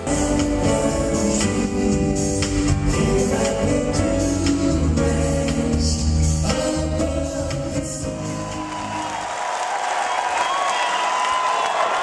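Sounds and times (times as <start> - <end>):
live band playing: 0.0 - 9.2.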